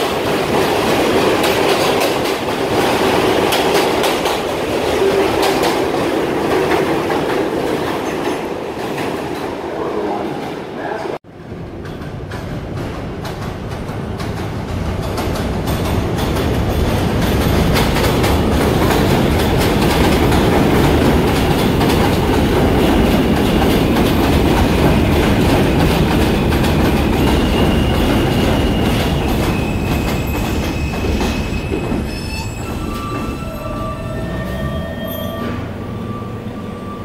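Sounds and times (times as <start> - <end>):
train wheels clacking over rails: 0.0 - 9.7, 11.6 - 33.4
high wheel squeal: 27.2 - 37.0.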